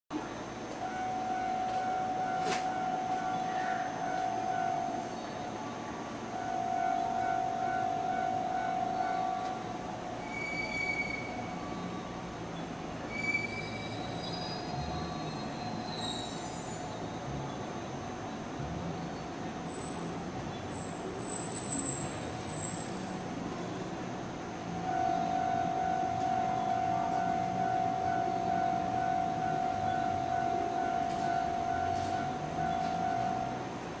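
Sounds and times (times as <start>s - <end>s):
electric train moving slowly: 0.1s - 34.0s
level crossing alarm ringing: 0.7s - 12.4s, 24.6s - 34.0s
train wheels squealing: 10.2s - 17.4s, 19.6s - 24.2s.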